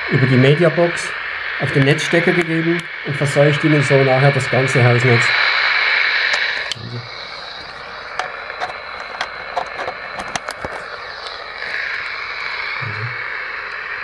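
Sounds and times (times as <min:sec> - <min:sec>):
meter loudspeaker hiss and crackle: 0:00.0 - 0:14.0
sharp clicks: 0:07.6 - 0:12.5.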